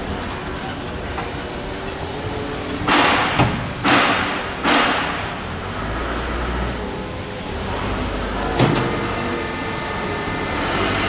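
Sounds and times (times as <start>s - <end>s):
pallet truck clattering on steel: 0.0s - 10.9s.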